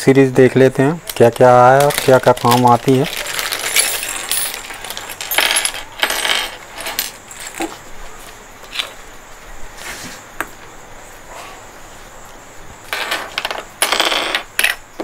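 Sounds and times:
small parts clattering onto table: 1.1s - 7.8s
plastic bag crinkling: 1.6s - 5.4s.

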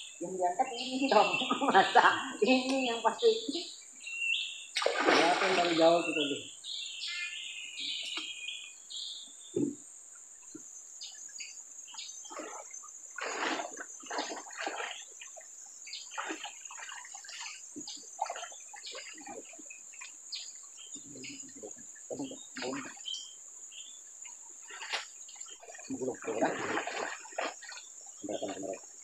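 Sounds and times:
river water splashing: 4.7s - 6.4s, 12.2s - 23.6s, 24.2s - 29.0s.

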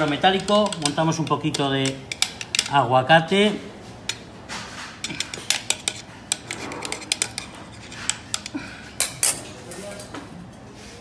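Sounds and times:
metal spoon clinking on metal: 0.0s - 2.8s, 5.0s - 9.6s.

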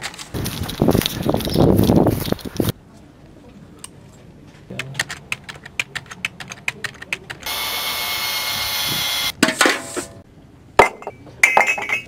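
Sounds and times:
ceramic mugs clinking: 10.8s - 12.0s.

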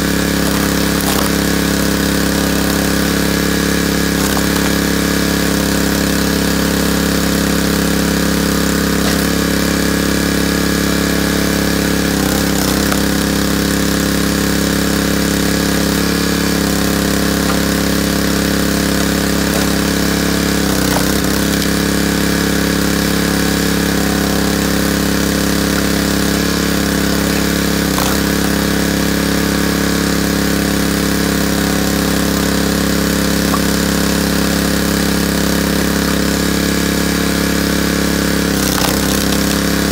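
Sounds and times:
small gas engine running: 0.0s - 39.9s
faint knocks of log splitter: 0.3s - 1.6s, 4.1s - 5.6s, 16.8s - 22.3s, 25.6s - 28.8s, 38.5s - 39.9s.

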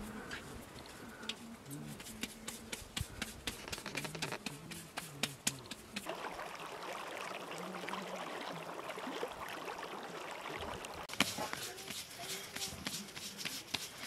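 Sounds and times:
hands patting bread dough: 1.9s - 6.1s
stream babbling: 4.1s - 13.7s.

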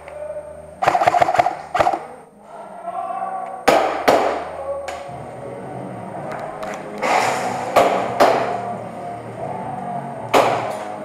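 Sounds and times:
airsoft guns firing: 0.8s - 2.1s, 3.7s - 4.5s.

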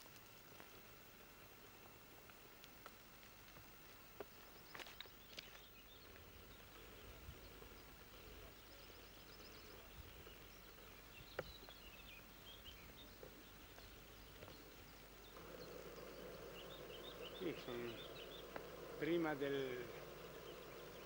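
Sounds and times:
faint bird chirps: 4.3s - 21.0s.

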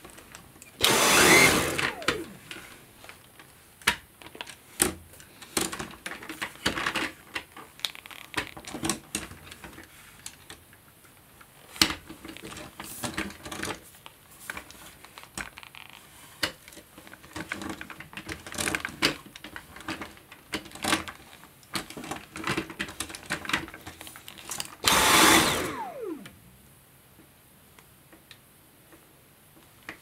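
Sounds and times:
vacuum motor whine: 0.8s - 2.7s, 24.8s - 26.8s.

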